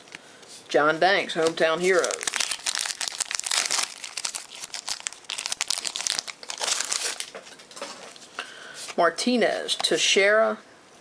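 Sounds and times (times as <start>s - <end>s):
card wrapper crinkling: 1.4s - 7.6s
cards rustling: 1.4s - 8.2s.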